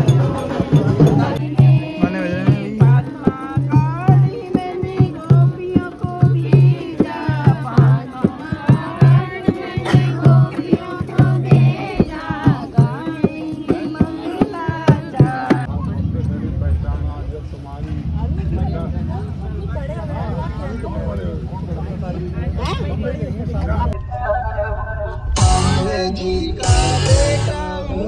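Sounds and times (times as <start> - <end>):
hand drum folk rhythm: 0.0 - 15.7
women singing: 0.0 - 15.7.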